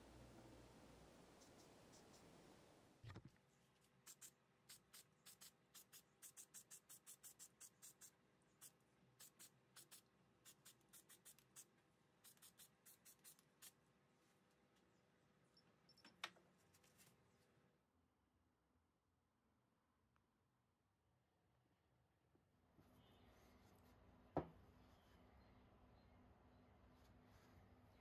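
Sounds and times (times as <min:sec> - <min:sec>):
soft knock: 0:24.4 - 0:24.6.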